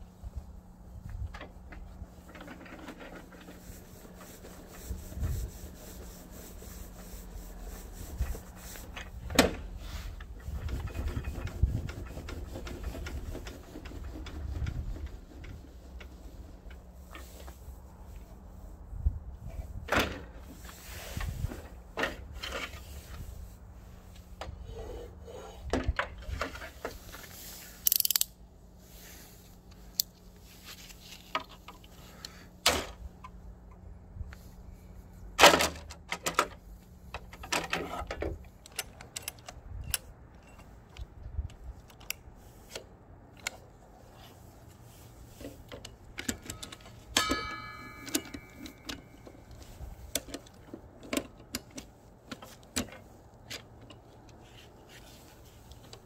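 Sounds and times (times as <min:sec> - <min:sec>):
metal ringing rattle: 0:47.1 - 0:49.2.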